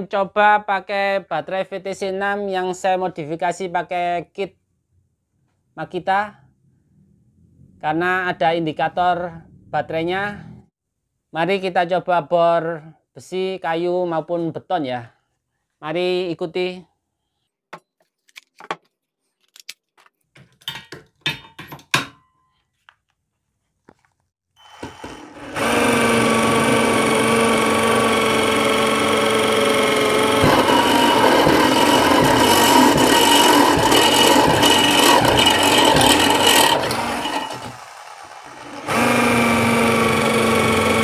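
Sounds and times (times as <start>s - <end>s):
drill drilling into steel tube: 24.6s - 41.0s.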